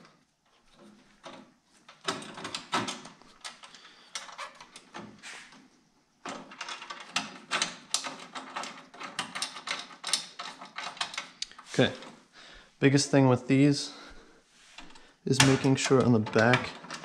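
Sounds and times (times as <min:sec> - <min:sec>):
bolts and nuts clicking: 0:00.7 - 0:12.2, 0:14.8 - 0:17.0.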